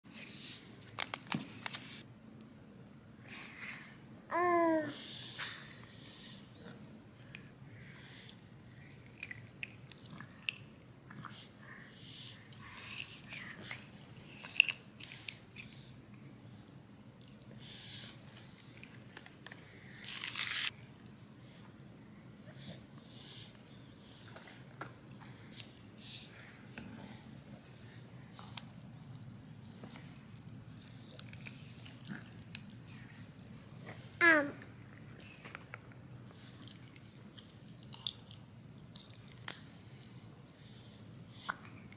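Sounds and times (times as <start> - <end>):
popping candy crackling: 27.3 - 41.9.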